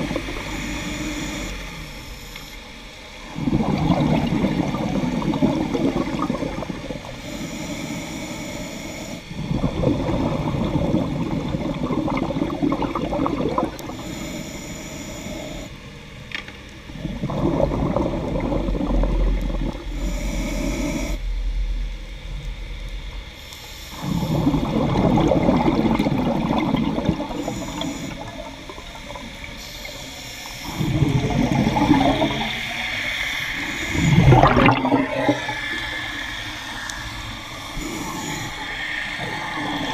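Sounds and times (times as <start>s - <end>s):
bubbling exhaled air underwater: 0.0s - 2.4s, 3.2s - 14.5s, 16.9s - 39.9s
regulator hiss on inhale: 7.0s - 9.4s, 13.8s - 15.7s, 19.8s - 21.5s, 27.1s - 28.4s, 29.5s - 34.3s, 35.2s - 39.9s.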